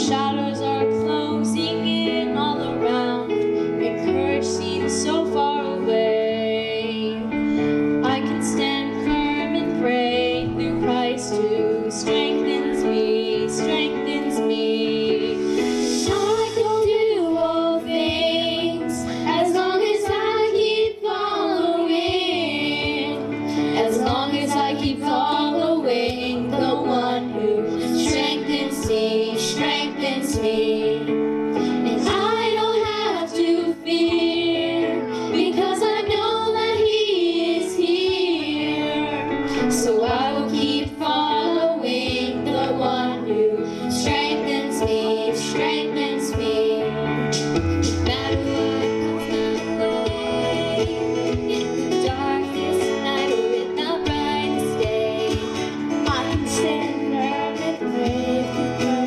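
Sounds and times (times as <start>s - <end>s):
instrumental accompaniment: 0.0s - 59.0s
young voices singing: 0.0s - 59.0s.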